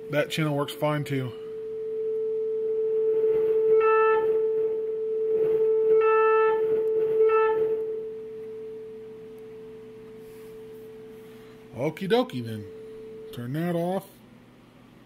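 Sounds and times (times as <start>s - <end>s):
sine test tone through speaker: 0.0s - 14.2s
buzzy clipping tone: 5.4s - 8.6s.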